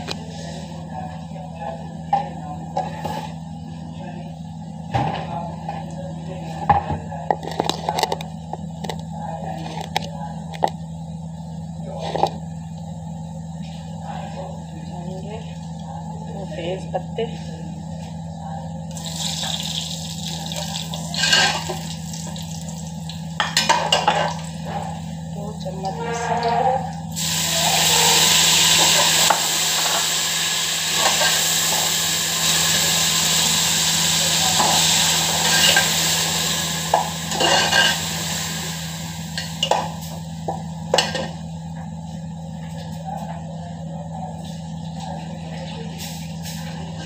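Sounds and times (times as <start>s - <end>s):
steady low hum: 0.0s - 47.0s
cooking pot hissing: 18.9s - 22.7s, 27.1s - 40.3s
utensils clinking on metal pot: 36.9s - 38.0s.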